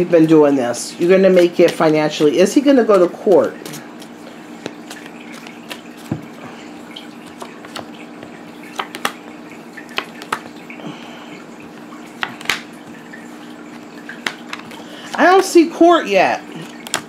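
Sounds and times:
cards snapping and slapping: 3.2s - 6.4s, 7.2s - 10.6s, 12.2s - 12.7s, 13.8s - 15.2s, 16.6s - 17.0s.

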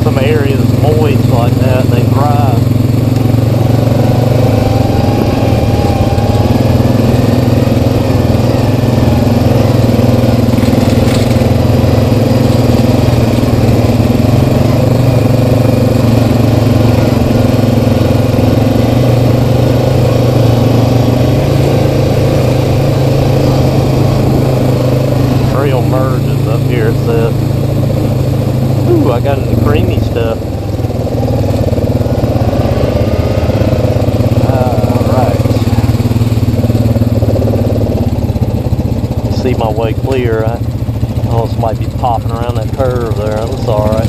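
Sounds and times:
atv engine droning: 0.0s - 44.0s.

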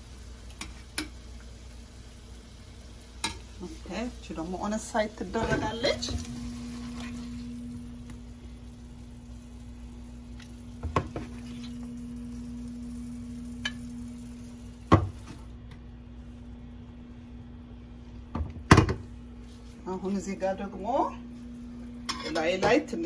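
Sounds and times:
vegetables sizzling in a pan: 0.0s - 16.6s
steady hum: 0.0s - 23.0s.

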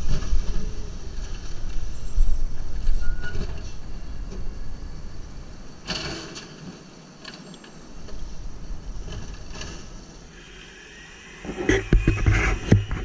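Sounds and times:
short clattering noises: 5.9s - 8.2s.

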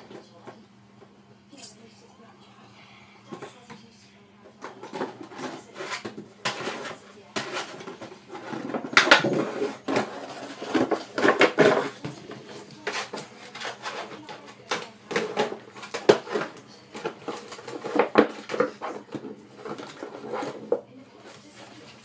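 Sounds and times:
plastic jug crackling and knocking: 4.5s - 20.9s.

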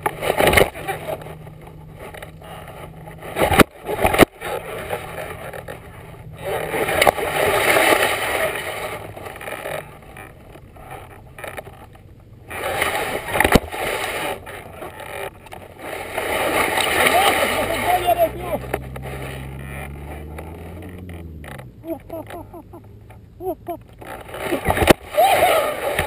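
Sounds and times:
board scraping over grass: 0.0s - 23.2s, 23.9s - 26.0s.

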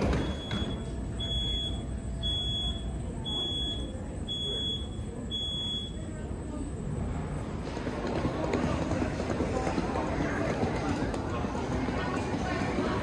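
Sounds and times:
electronic warning beeper: 0.0s - 6.8s.

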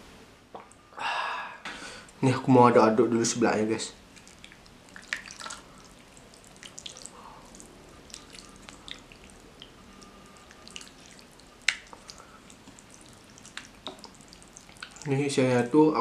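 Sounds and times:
food squelching in bowl: 4.0s - 15.3s.

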